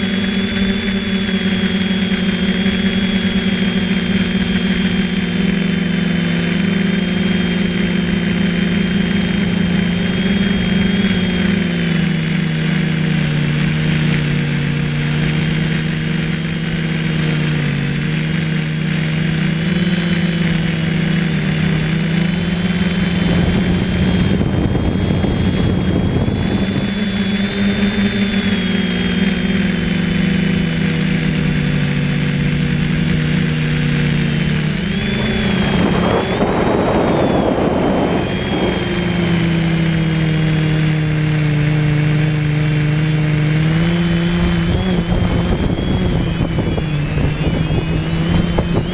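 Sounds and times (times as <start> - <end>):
drone motors whining: 0.0 - 48.9
rush of noise: 22.4 - 29.0, 32.5 - 48.9.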